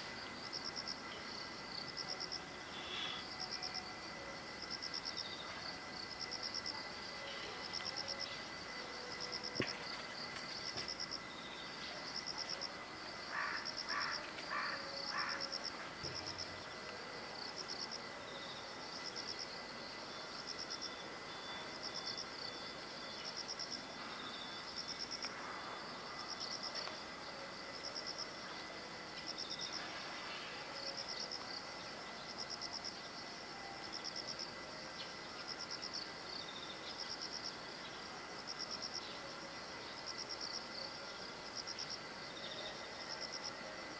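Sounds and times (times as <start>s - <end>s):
faint hiss: 0.0s - 43.9s
insects chirping: 0.0s - 43.9s.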